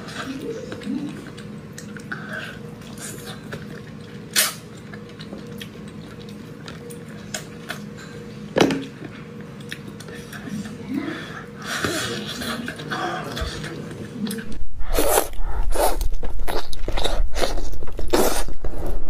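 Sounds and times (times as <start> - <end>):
chewing and mouth smacks: 0.1 - 8.2, 8.8 - 10.7.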